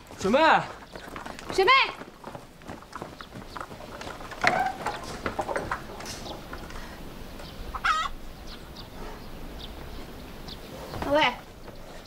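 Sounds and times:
chickens clucking: 0:00.0 - 0:12.0
chicken squawk: 0:07.7 - 0:08.2.

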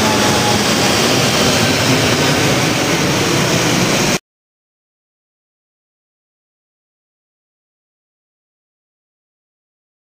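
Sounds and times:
jet engine roar overhead: 0:00.0 - 0:04.2.

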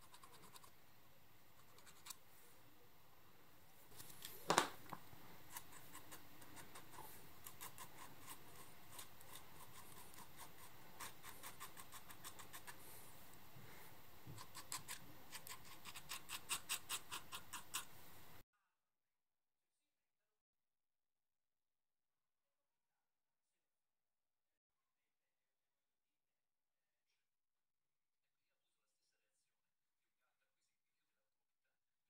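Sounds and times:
metal file scraping: 0:05.4 - 0:12.8, 0:14.4 - 0:18.0.

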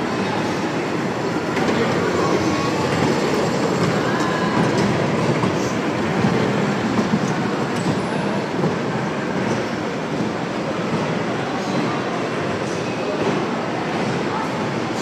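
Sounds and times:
miniature train rumbling on track: 0:00.0 - 0:15.0.

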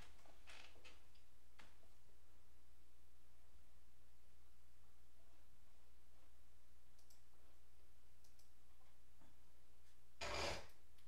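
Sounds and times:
faint clicks: 0:07.0 - 0:07.3, 0:08.2 - 0:08.5.

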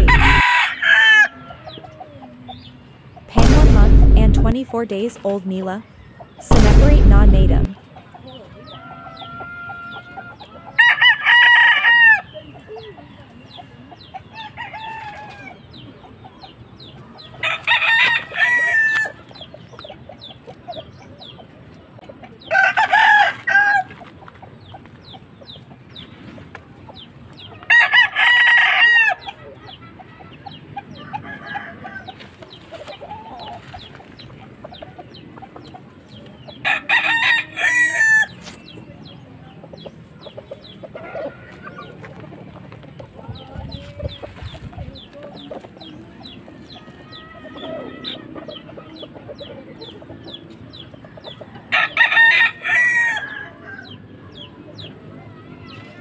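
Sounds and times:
rooster crowing: 0:00.0 - 0:01.6, 0:51.7 - 0:53.8
chicken clucking: 0:07.7 - 0:27.9, 0:28.9 - 0:52.0.

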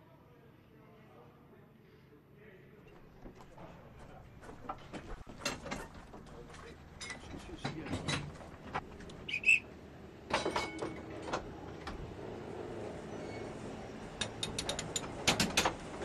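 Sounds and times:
metal lever clanks and clicks: 0:04.7 - 0:08.6, 0:10.3 - 0:12.0, 0:14.2 - 0:15.9
high metal squeal: 0:13.0 - 0:13.7.

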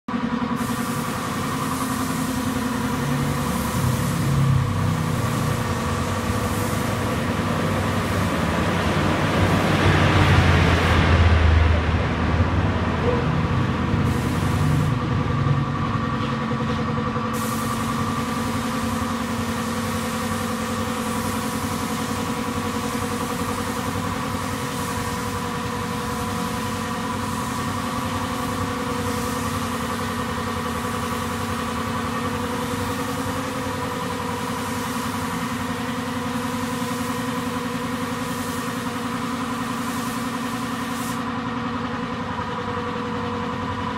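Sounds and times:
air compressor humming: 0:00.1 - 0:43.9
spray gun hissing: 0:00.6 - 0:09.8, 0:13.8 - 0:15.1, 0:17.3 - 0:41.3.

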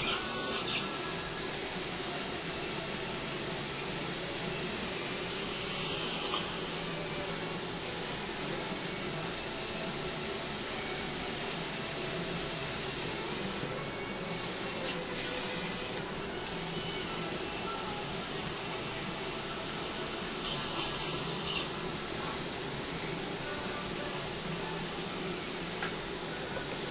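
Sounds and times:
dental surgical equipment hissing: 0:00.0 - 0:02.0, 0:05.4 - 0:07.5, 0:14.3 - 0:24.4
high hissing bursts: 0:20.4 - 0:21.8.

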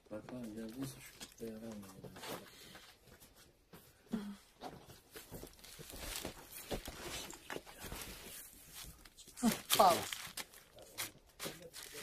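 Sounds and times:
plastic bag rustling: 0:05.0 - 0:12.0.

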